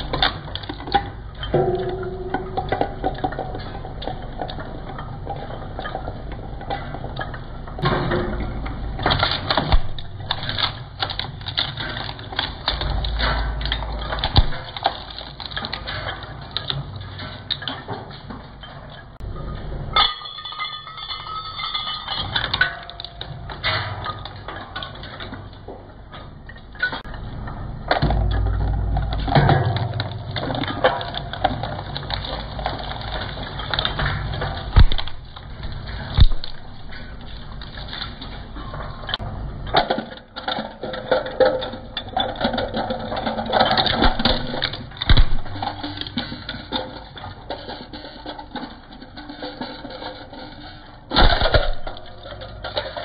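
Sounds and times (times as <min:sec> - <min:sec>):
low machine rumble: 0:01.2 - 0:16.6, 0:27.1 - 0:39.7, 0:43.2 - 0:48.3
sharp cracks: 0:09.0 - 0:16.8, 0:29.2 - 0:38.3, 0:43.7 - 0:46.7, 0:51.1 - 0:53.0.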